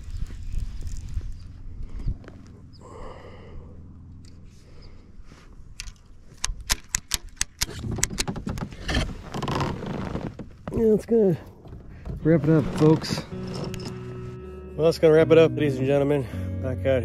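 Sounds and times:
rustling: 0.0s - 2.6s
sharp clicks and knocks: 5.8s - 10.8s.

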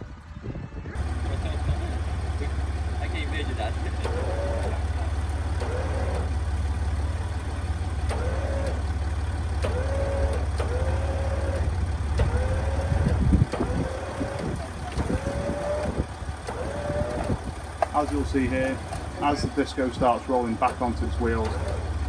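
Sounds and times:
electric winch droning: 1.0s - 22.0s.

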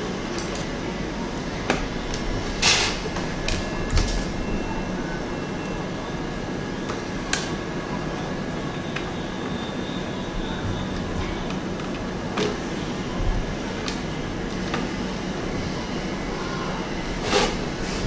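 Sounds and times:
short scrape: 17.2s - 18.0s.

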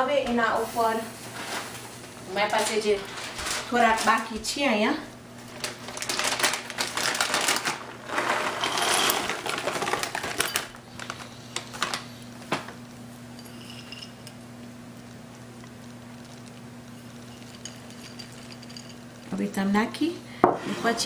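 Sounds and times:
plastic bag crinkling: 5.4s - 12.5s
low steady hum: 9.4s - 21.0s.

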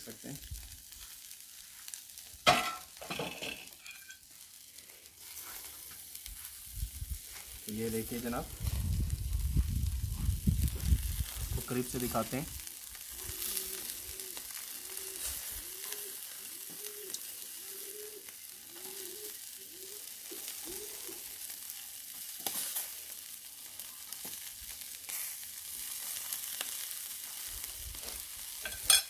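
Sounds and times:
meat sizzling on a grill: 0.0s - 29.0s
soft low hoots: 13.1s - 21.3s.

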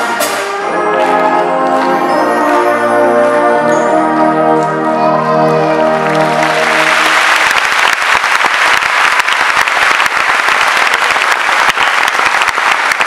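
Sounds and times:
brass band chord: 0.0s - 7.4s
audience applauding: 5.5s - 13.0s.

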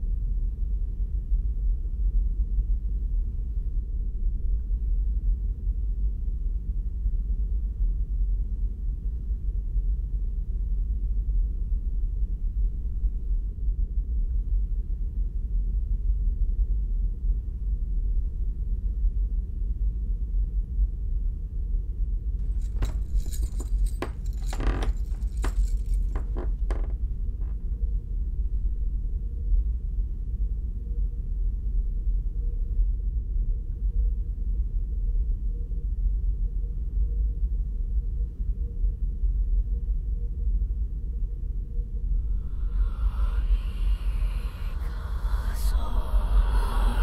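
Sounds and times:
low rumbling drone: 3.8s - 16.6s, 22.4s - 29.5s, 41.8s - 47.0s
metallic jangling and ringing: 22.4s - 26.7s.

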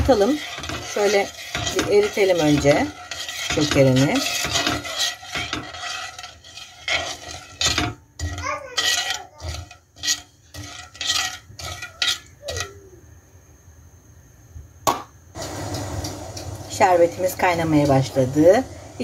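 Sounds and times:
metal spoon scraping pot: 0.0s - 12.9s.

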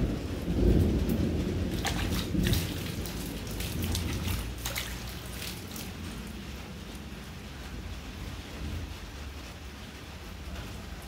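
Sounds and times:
low thunder rumble: 0.0s - 11.0s
rain falling on wet ground: 0.0s - 11.0s
drops splashing: 1.0s - 6.6s.

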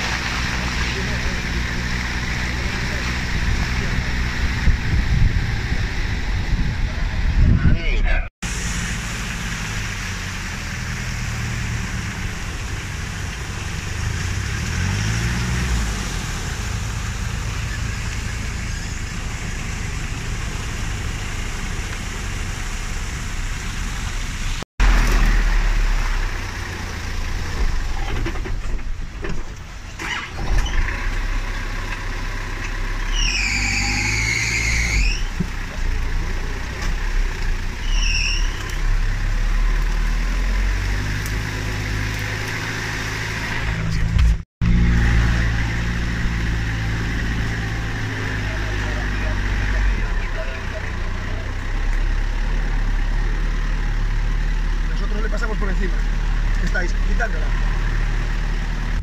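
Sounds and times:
off-road vehicle engine running: 0.0s - 59.0s
short high squeal: 33.0s - 35.4s, 37.8s - 38.8s.

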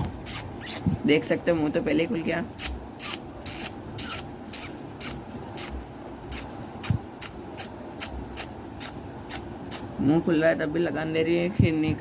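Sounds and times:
parakeet rasping: 0.0s - 1.0s, 2.5s - 10.0s.

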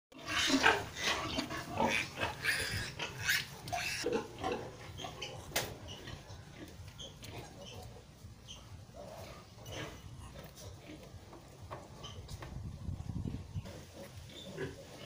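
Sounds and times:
piglets squealing: 0.2s - 10.7s.

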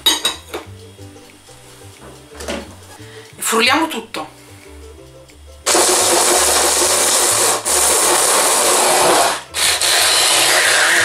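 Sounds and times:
electric mini chopper chopping: 5.7s - 11.0s.

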